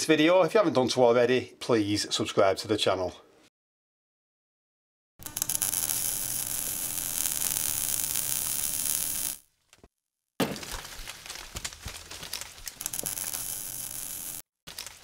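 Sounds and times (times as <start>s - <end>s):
crackling hiss: 5.2s - 9.4s, 12.8s - 14.4s
sharp clicks and crackles: 5.2s - 9.4s, 11.3s - 15.0s.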